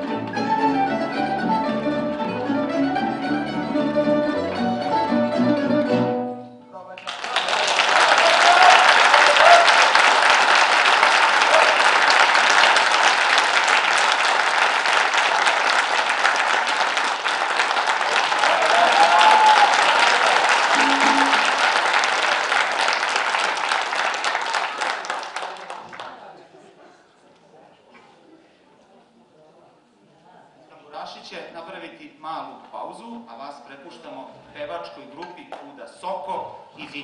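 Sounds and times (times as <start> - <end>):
short cheers: 7.0 - 10.2, 11.2 - 12.0, 18.2 - 21.8
audience applauding: 7.0 - 26.3.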